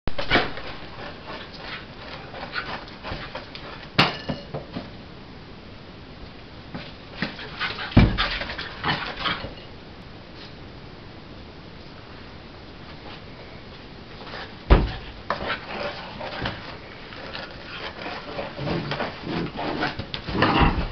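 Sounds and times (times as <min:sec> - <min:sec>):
heavy thump: 0:08.0 - 0:08.4, 0:14.7 - 0:15.1.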